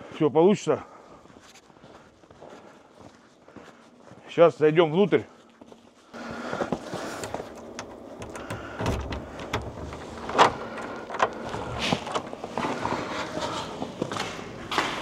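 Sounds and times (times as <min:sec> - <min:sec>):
footsteps: 0:00.9 - 0:15.0
door knocks and clatter: 0:07.7 - 0:12.3.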